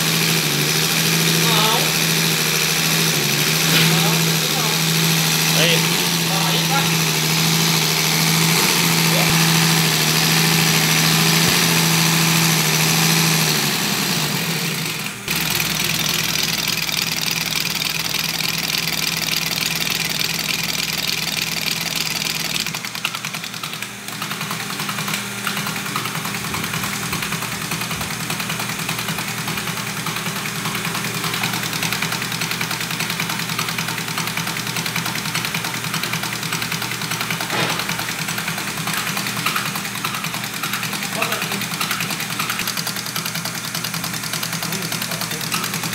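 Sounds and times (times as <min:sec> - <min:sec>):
injection pump test bench running: 0:00.0 - 0:45.9.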